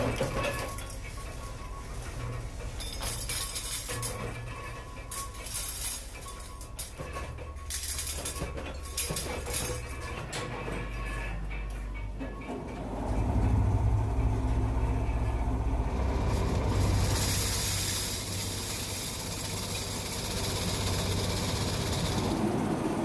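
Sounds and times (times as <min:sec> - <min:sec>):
vibratory polishing tub humming: 0:09.8 - 0:23.0.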